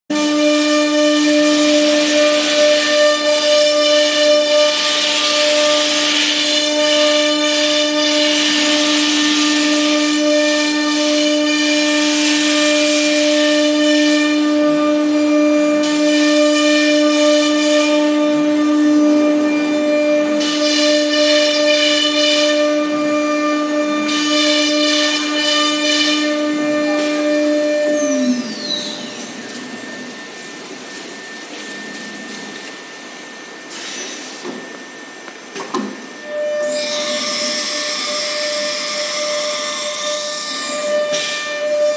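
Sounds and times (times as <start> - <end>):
router spindle whining: 1.2 - 41.9
thin high tone: 25.8 - 34.8.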